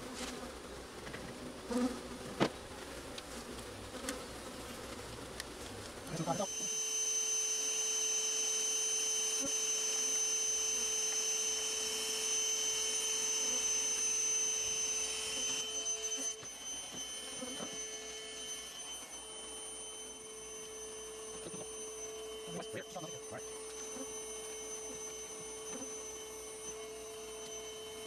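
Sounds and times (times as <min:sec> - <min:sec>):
low held hum tone: 0:00.0 - 0:28.0
high-pitched held tones: 0:06.1 - 0:28.0.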